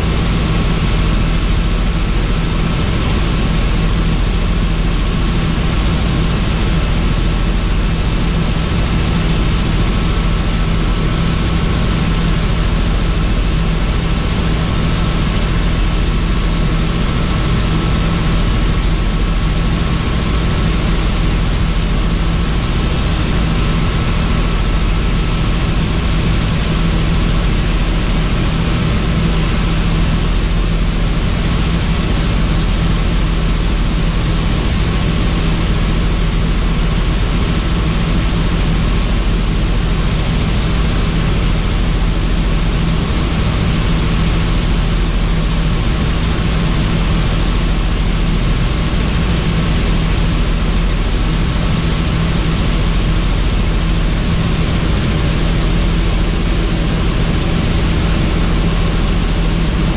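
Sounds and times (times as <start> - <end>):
helicopter rotor and engine: 0.0 - 59.9.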